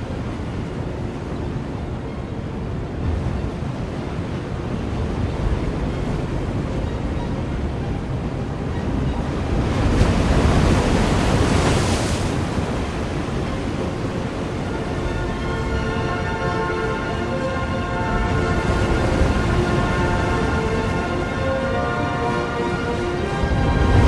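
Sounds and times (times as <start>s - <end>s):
waves breaking: 0.0s - 24.0s
big wave crashing: 14.7s - 24.0s.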